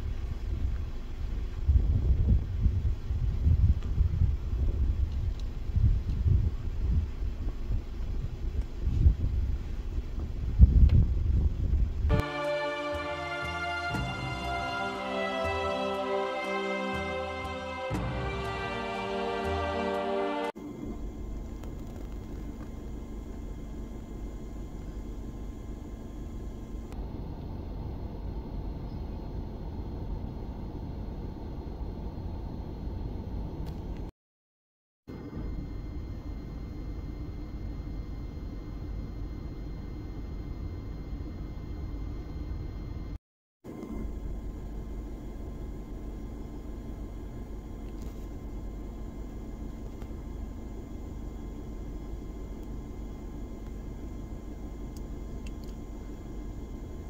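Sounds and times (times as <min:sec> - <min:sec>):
wind buffeting microphone: 0:00.0 - 0:12.1
low outdoor rumble and hiss: 0:00.0 - 0:34.0, 0:35.1 - 0:57.0.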